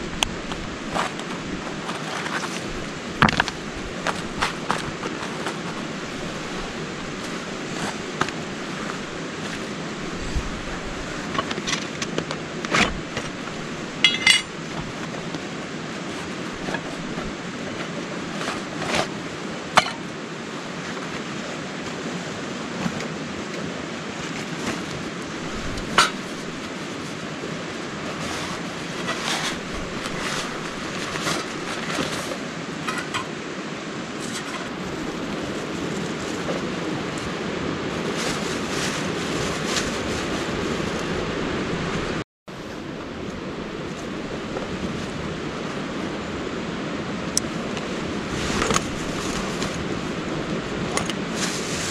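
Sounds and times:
steady rushing noise: 0.0s - 51.9s
metal camp gear clinking: 11.3s - 15.1s, 19.8s - 20.1s, 32.8s - 33.4s.

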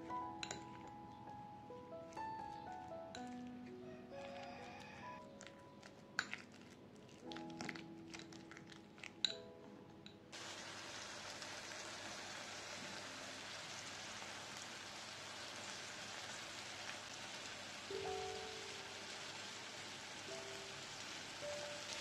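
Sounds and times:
fork clinking against glass bowl: 0.4s - 0.9s
oil sizzling in frying pan: 10.4s - 22.0s.

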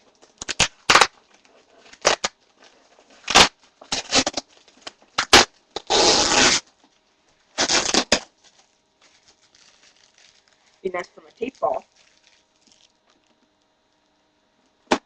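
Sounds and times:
packing tape ripping: 0.4s - 1.2s, 1.9s - 2.4s, 3.2s - 6.7s, 7.6s - 10.6s.

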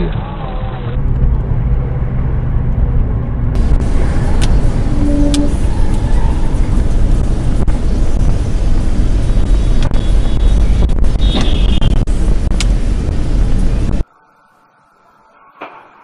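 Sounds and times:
car road and engine rumble: 0.0s - 14.0s
brief high tone: 4.9s - 5.6s.

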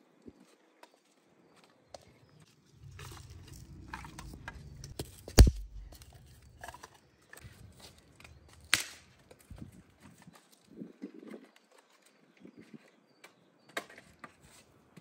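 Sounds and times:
sharp knocks: 5.3s - 6.0s.

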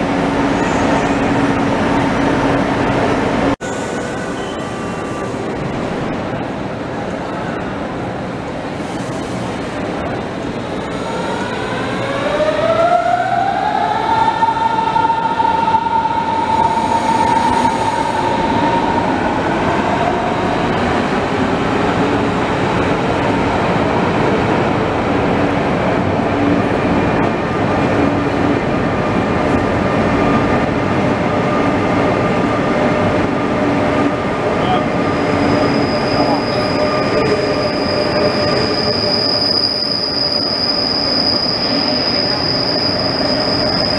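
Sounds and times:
train coaches rumbling and rattling: 15.3s - 43.9s.

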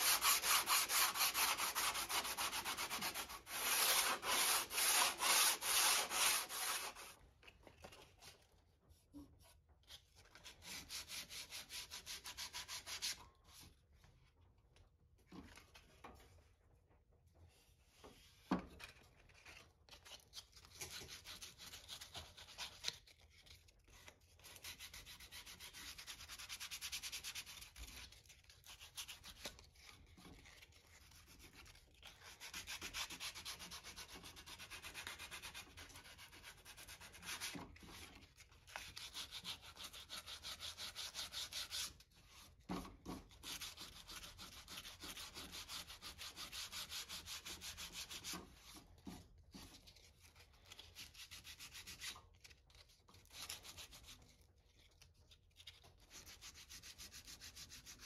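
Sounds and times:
sandpaper scratching on wood: 0.0s - 7.1s, 38.8s - 41.9s, 43.4s - 48.8s.

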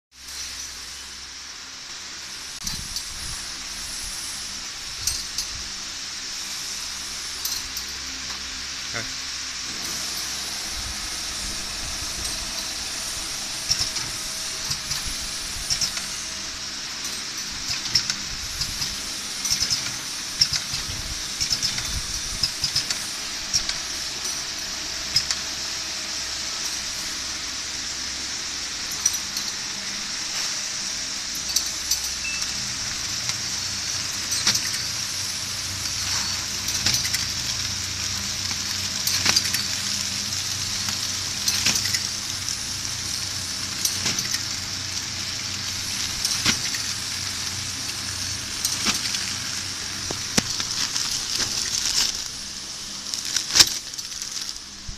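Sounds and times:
packing machine hiss and hum: 0.1s - 54.9s
machine sharp clack: 9.7s - 24.5s.

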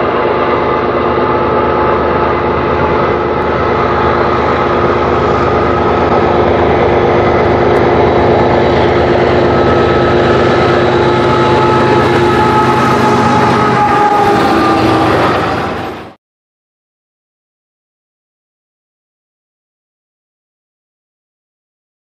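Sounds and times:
diesel train engine drone: 0.0s - 16.2s
rushing rail noise: 0.0s - 16.2s.

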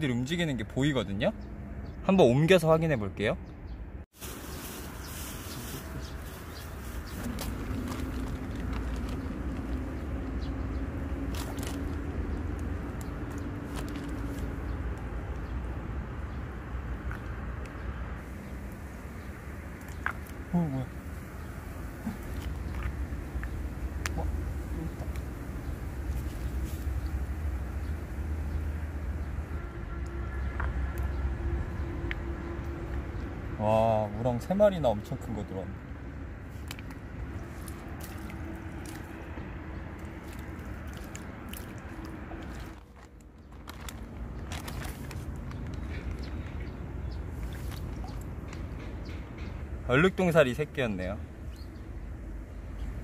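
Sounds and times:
plastic bag crinkling: 4.2s - 10.4s, 13.6s - 14.6s, 40.3s - 46.4s
wet mud squelching: 6.1s - 15.1s, 19.7s - 20.6s, 21.4s - 27.2s, 36.4s - 48.3s.

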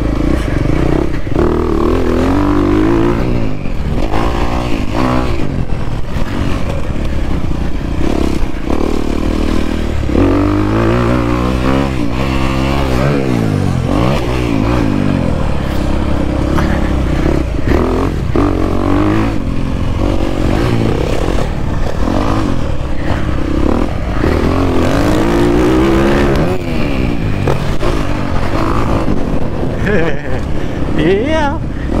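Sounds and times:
dirt bike engine revving: 0.0s - 32.0s.

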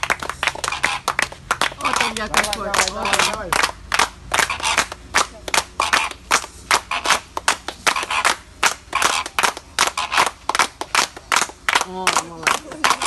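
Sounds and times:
people clapping in rhythm: 0.0s - 13.0s.

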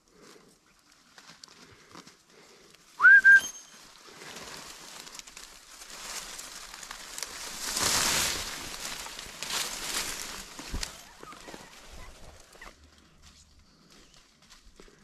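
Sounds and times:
dry reeds rustling and crackling: 0.0s - 2.9s, 3.8s - 15.0s
rising whistle: 3.0s - 3.8s.

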